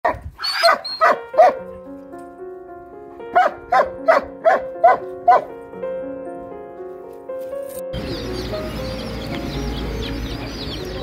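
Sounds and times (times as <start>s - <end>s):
dog barking: 0.0s - 1.6s, 3.3s - 5.5s
background music: 0.4s - 11.0s.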